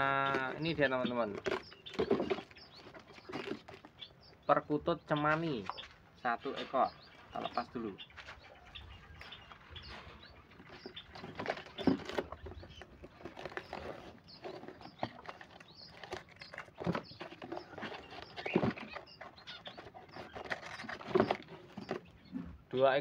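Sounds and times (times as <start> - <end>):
birds fluttering against cardboard: 0.0 - 4.0, 10.6 - 22.2
cardboard box rustling and scraping: 0.6 - 3.9, 10.7 - 22.6.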